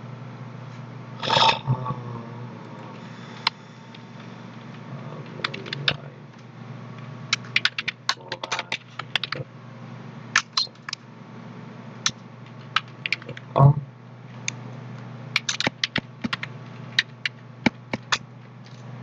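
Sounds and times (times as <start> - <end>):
steady low hum: 0.0 - 19.0
keyboard keystroke clicks: 15.4 - 18.2.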